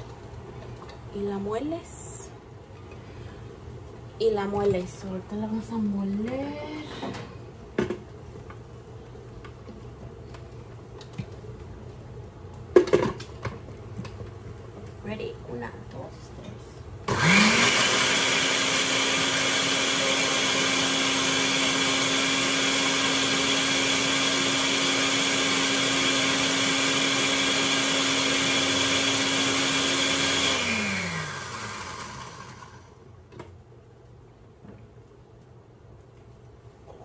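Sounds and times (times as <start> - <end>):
blender motor running: 17.1 - 33.0.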